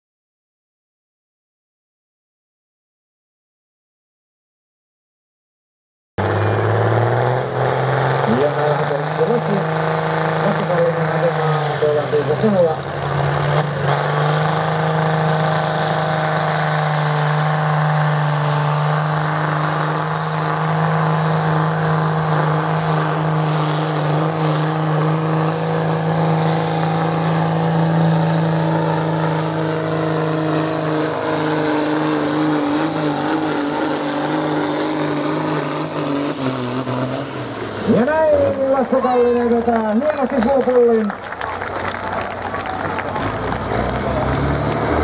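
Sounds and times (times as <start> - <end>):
tractor engine running under load: 36.4 - 45.0.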